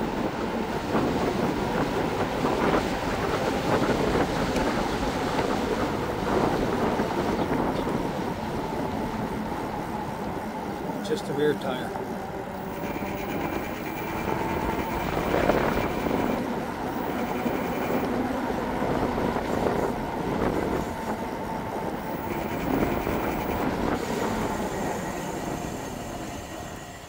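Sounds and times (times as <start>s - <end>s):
hub motor whine: 6.5s - 26.2s.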